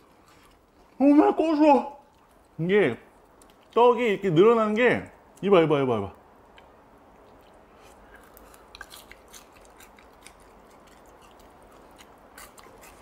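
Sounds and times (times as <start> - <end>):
sticky chewing: 0.0 - 1.0, 2.0 - 4.0, 6.5 - 13.0
crisp crunching of fried crust: 7.3 - 13.0.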